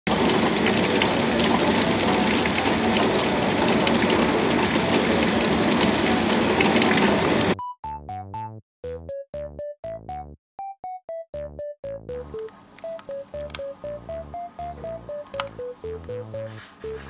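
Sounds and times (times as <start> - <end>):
heavy rain hissing: 0.1 - 7.6
plucked synthesizer notes: 13.2 - 17.0.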